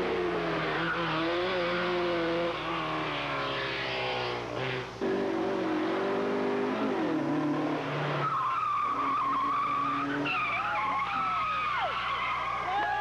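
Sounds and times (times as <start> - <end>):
race car engine: 0.0 - 13.0
tyres squealing: 8.1 - 13.0.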